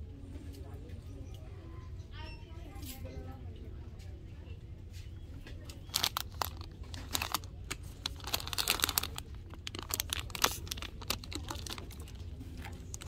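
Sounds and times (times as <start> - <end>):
plastic candy packaging crinkling: 5.7 - 13.0.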